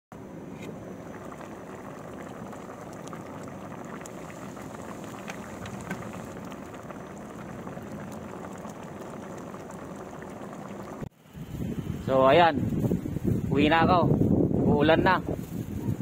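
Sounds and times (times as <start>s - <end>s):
sauce bubbling and popping: 0.6s - 11.1s.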